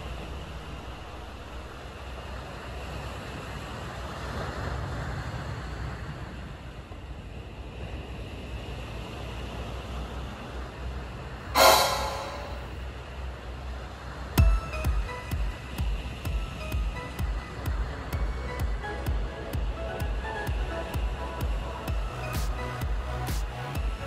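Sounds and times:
wind: 0.0s - 24.0s
short loud pitched sound: 11.6s - 12.8s.

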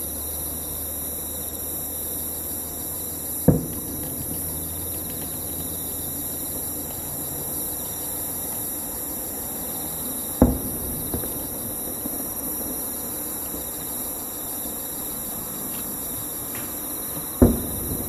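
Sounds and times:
insects chirring: 0.0s - 18.0s
faint firework pops: 3.4s - 8.8s, 10.4s - 14.0s, 15.7s - 18.0s
distant firework boom: 3.5s - 5.5s, 10.4s - 12.2s, 17.2s - 18.0s.

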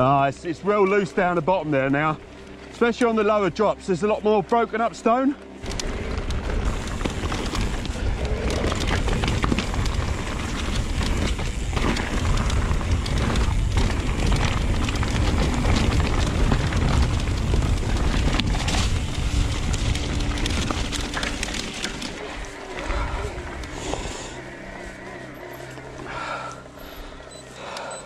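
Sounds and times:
bike rattling over stones: 0.0s - 27.6s
tyres crunching on gravel: 0.0s - 27.8s
wind buffeting microphone: 5.7s - 22.1s.

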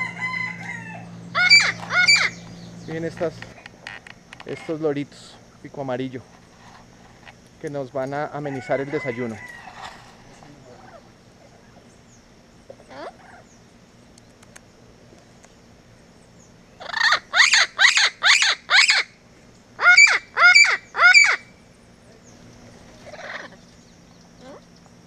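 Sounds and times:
parrots squawking: 0.0s - 4.7s, 8.9s - 11.8s, 12.7s - 13.5s, 16.8s - 19.1s, 19.8s - 21.5s, 22.9s - 23.6s, 24.4s - 24.7s.

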